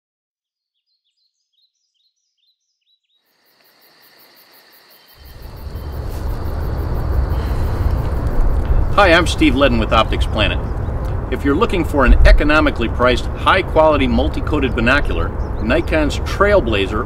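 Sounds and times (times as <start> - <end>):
woodland ambience: 1.7 - 17.0
heavy uneven low rumble: 5.2 - 16.9.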